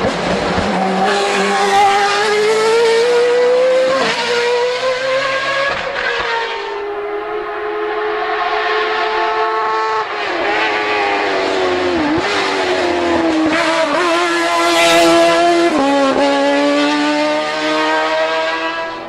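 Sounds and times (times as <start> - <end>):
racing car engine at high revs: 0.0 - 19.0.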